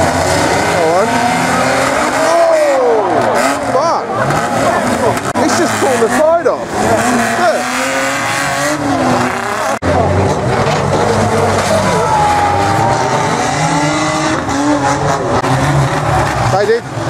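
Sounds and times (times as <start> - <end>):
racing car engines revving: 0.0 - 17.0.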